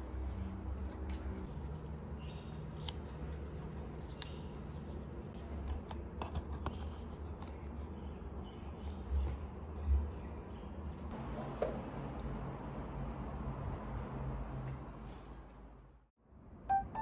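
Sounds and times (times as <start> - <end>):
paper and card rustling: 2.7 - 8.2.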